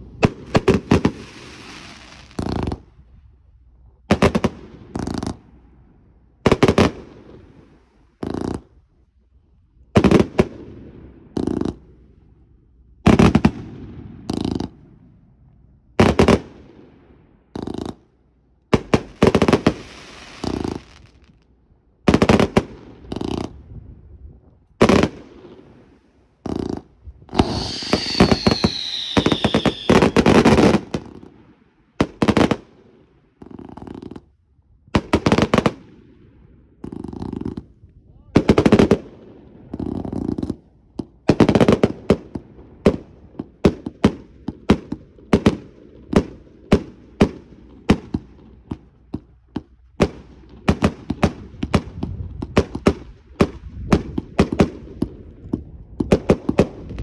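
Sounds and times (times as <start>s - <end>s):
rapid crackling firework bangs: 0.1s - 2.9s, 4.1s - 5.5s, 8.2s - 8.7s, 9.9s - 11.9s, 16.0s - 16.6s, 18.7s - 21.3s, 22.1s - 23.7s, 24.8s - 34.3s, 34.9s - 36.0s, 38.4s - 57.0s
fireworks banging: 18.7s - 21.4s, 25.9s - 31.4s, 39.7s - 57.0s
firework whistle falling in pitch: 27.3s - 30.3s.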